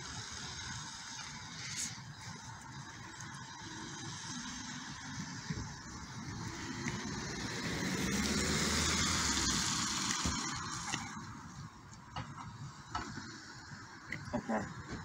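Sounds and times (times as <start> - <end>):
car passing on wet road: 6.2 - 10.8.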